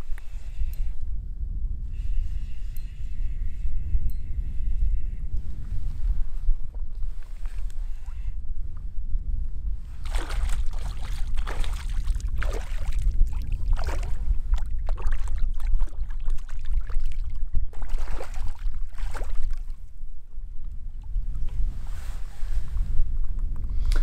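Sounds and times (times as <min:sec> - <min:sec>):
wind on microphone: 0:00.0 - 0:24.0
fish splashing water: 0:10.0 - 0:19.7.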